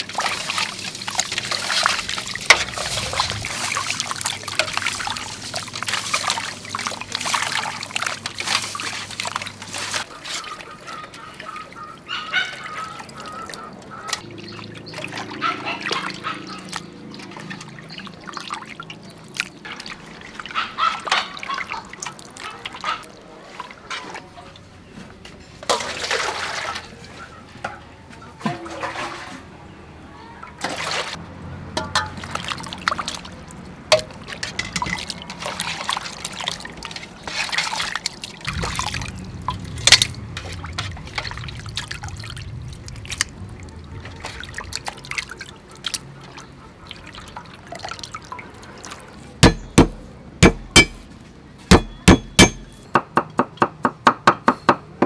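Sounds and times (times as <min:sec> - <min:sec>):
water splashing and trickling: 0:00.0 - 0:52.9
metal bowls knocking: 0:49.4 - 0:51.0, 0:51.7 - 0:54.8.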